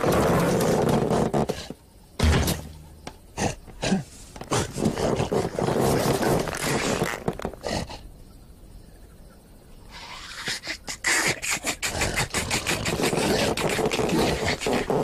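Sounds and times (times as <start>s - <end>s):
heavy thump: 2.2s - 3.2s
cartoon lion grunts and growls: 3.4s - 6.3s, 9.9s - 15.0s.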